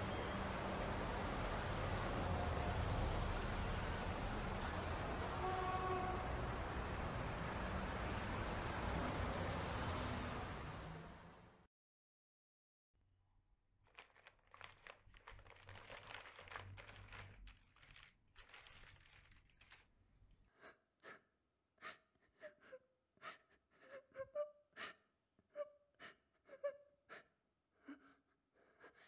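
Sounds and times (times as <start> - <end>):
crumpled bag rustling: 13.9 - 20.4
woman sobbing: 22.3 - 29.0.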